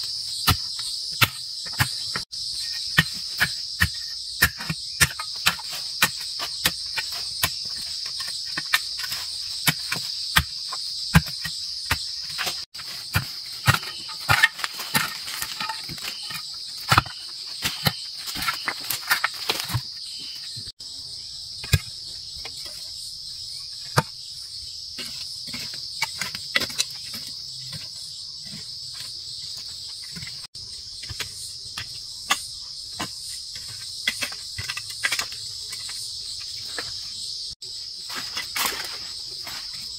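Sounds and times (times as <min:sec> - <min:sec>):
insect chorus: 0:00.0 - 0:39.9.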